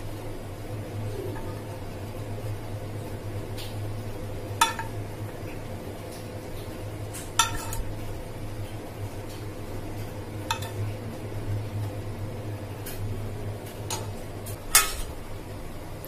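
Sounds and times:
metal spoon clinking on pan: 4.6s - 5.0s, 7.4s - 7.8s, 10.5s - 10.8s.

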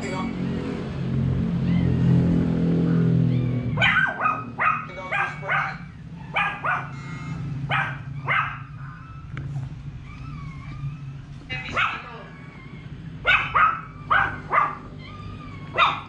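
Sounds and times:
dog barking: 3.4s - 7.0s, 7.6s - 9.2s, 11.6s - 12.4s, 13.2s - 15.0s, 15.6s - 16.0s.

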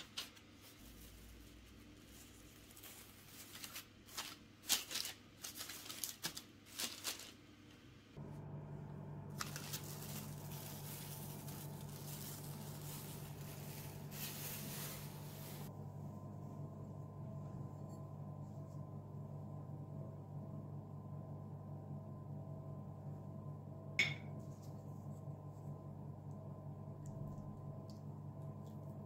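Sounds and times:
plastic wrap crinkling: 0.0s - 7.5s, 9.3s - 15.7s
steady low hum: 8.0s - 29.0s.

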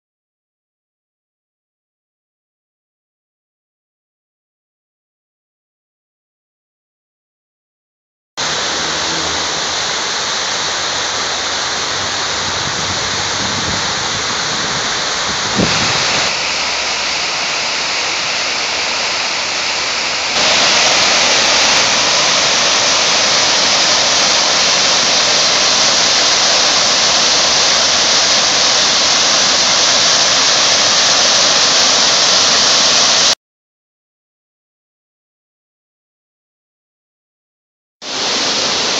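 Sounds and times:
fountain water splashing into basin: 8.4s - 33.4s, 38.0s - 38.9s.

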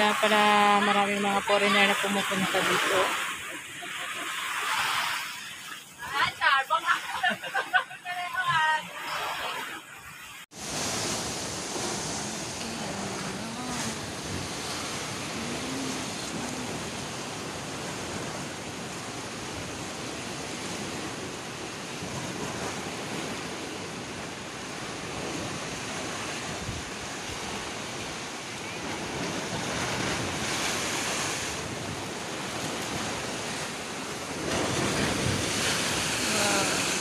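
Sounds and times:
surf breaking against rocks: 28.3s - 37.0s.

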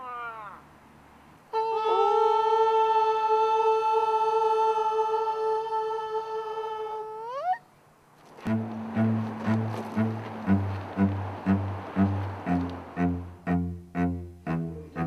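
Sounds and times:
person singing a long held note: 1.5s - 7.3s.

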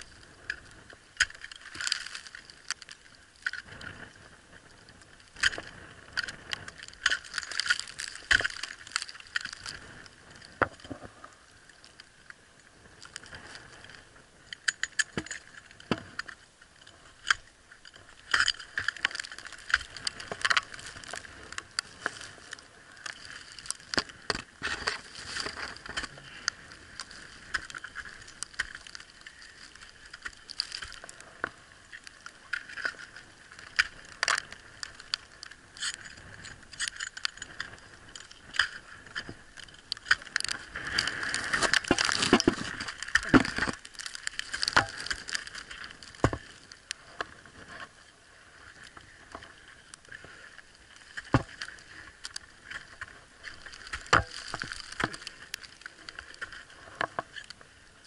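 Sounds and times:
metal climbing gear clinking: 1.2s - 2.8s, 5.4s - 9.8s, 14.4s - 31.2s, 35.8s - 46.6s
ice axes striking ice: 7.0s - 9.7s, 40.0s - 46.6s, 53.7s - 55.3s.

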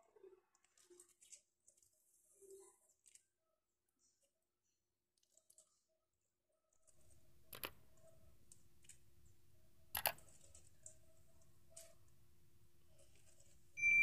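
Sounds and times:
mouse clicks: 7.5s - 7.8s, 9.9s - 11.0s.

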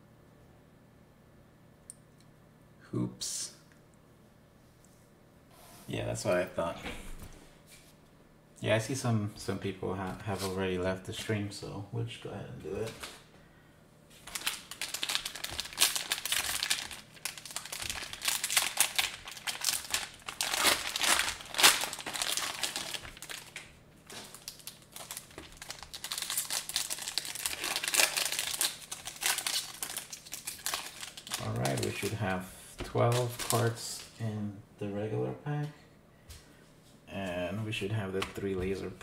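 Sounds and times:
foil wrapper crinkling: 14.2s - 34.2s.

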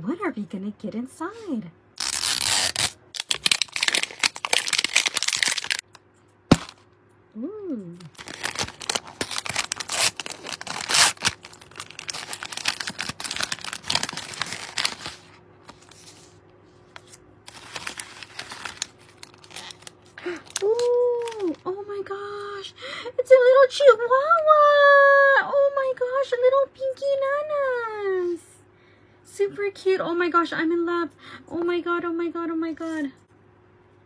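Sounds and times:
toy capsule being unzipped: 2.0s - 5.8s, 8.1s - 15.1s
plastic wrappers crinkling and tearing: 2.0s - 5.9s, 8.1s - 16.3s, 16.9s - 21.7s.

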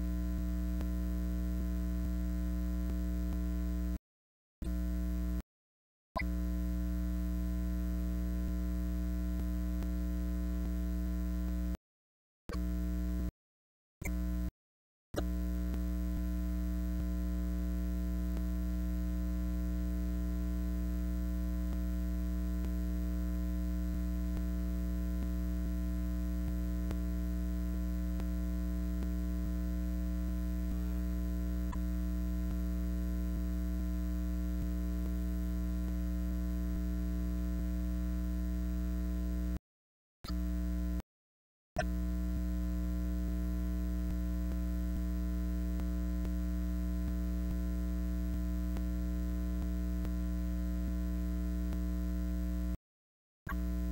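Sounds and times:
electrical mains hum: 25.2s - 33.8s.

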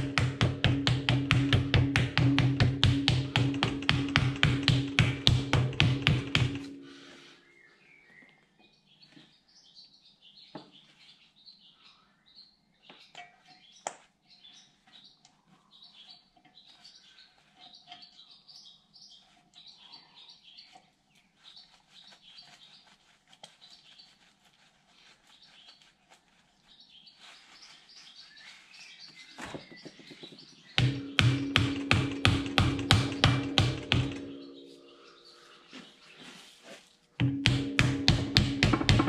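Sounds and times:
sharp taps: 0.0s - 6.8s, 29.5s - 34.7s, 37.2s - 39.0s
small birds chirping: 0.0s - 39.0s.

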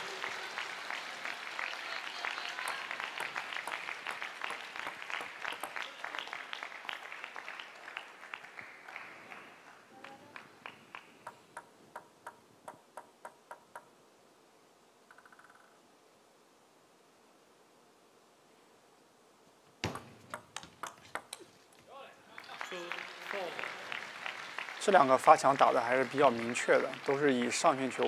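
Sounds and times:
crowd applauding: 0.0s - 11.2s, 22.3s - 28.0s
table tennis ball bouncing: 19.8s - 21.5s.

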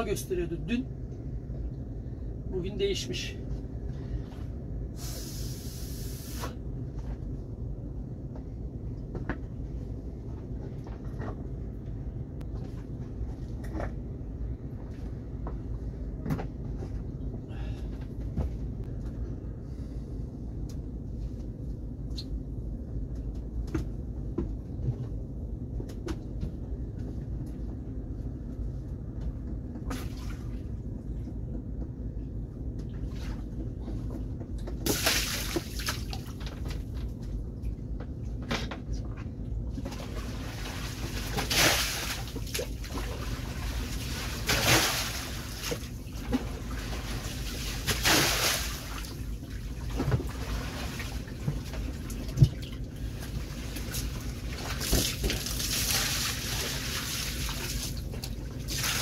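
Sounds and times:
low rumble: 0.0s - 34.8s
water splashing against hull: 33.0s - 37.1s, 39.8s - 59.0s.

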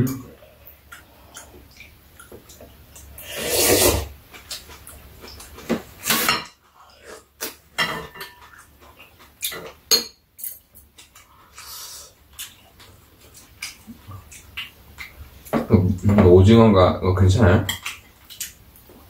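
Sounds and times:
slurping food: 3.2s - 4.1s.

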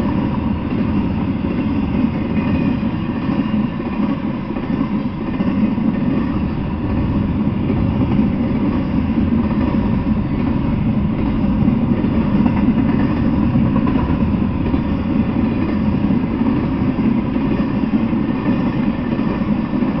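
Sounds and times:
freight train rumbling past: 0.0s - 20.0s.

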